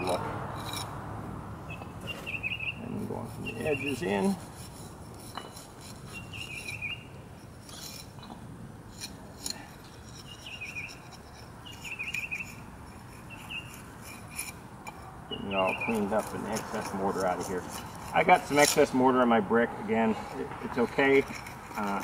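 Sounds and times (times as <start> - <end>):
tool scraping mortar: 0.0 - 1.0, 2.2 - 22.0
bird chirping: 1.6 - 4.4, 5.3 - 8.4, 10.1 - 13.9, 15.2 - 17.8.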